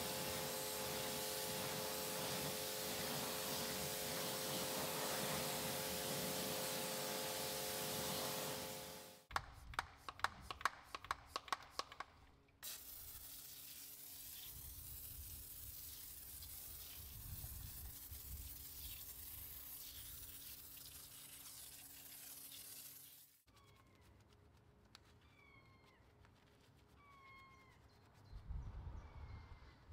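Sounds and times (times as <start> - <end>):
foam spraying hiss: 0.0 - 9.2, 12.6 - 23.3.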